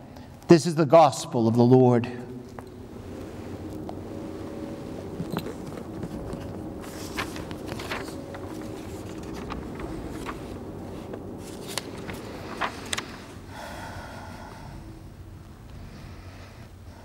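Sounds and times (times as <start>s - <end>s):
low steady background noise: 0.0s - 17.0s
book pages handled: 5.2s - 13.4s.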